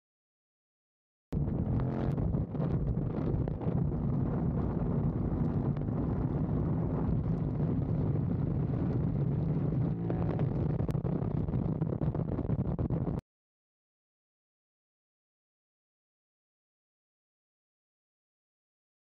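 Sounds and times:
motorcycle engine cruising: 1.4 - 11.8
wind buffeting microphone: 1.4 - 13.2.

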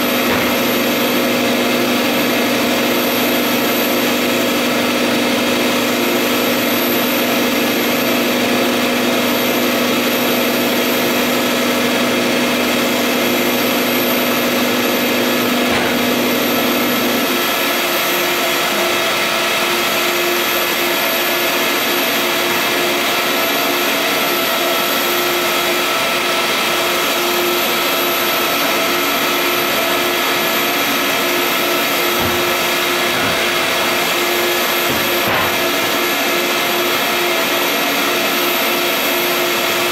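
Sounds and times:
printer machine whir: 0.0 - 39.9
low machine hums: 12.7 - 18.3, 29.7 - 38.0.

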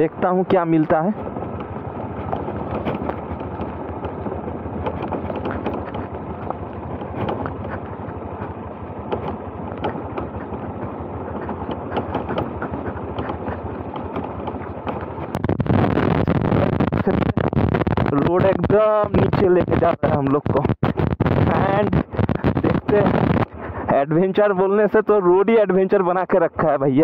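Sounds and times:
motorcycle engine running: 0.0 - 26.1
small knocks and rattles: 0.5 - 16.4.

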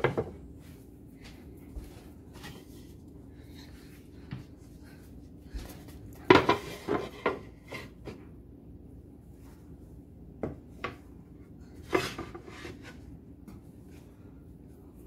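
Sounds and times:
kitchen items clinking and knocking: 6.2 - 7.9.

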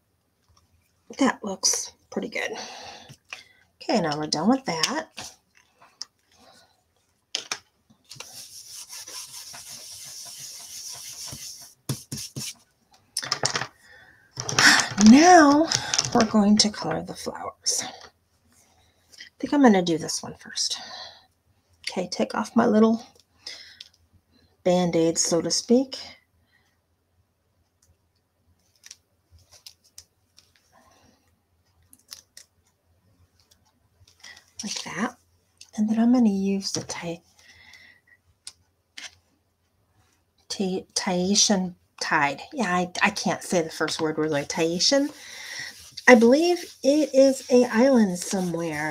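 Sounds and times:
brush scratching on paper: 8.1 - 12.6, 43.5 - 48.9.

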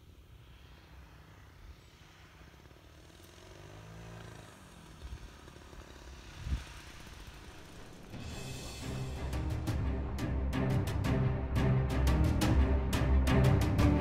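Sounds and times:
model airplane engine in flight: 0.0 - 8.3.

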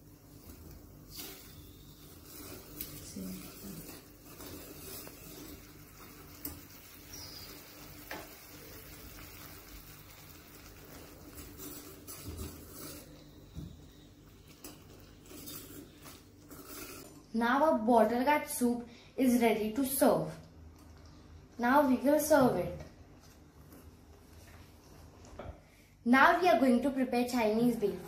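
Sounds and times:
spoon stirring soup in pan: 0.3 - 6.8.

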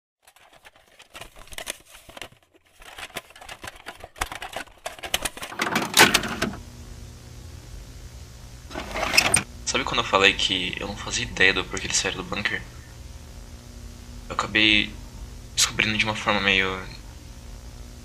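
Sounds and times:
tape clicks and crackle: 0.2 - 6.6
low electrical hum: 0.4 - 18.0.

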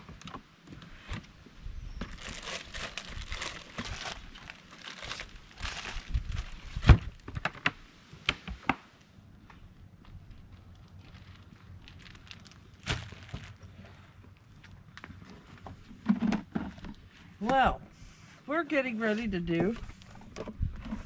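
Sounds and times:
plastic bags crinkling: 2.1 - 7.2, 10.6 - 13.8.

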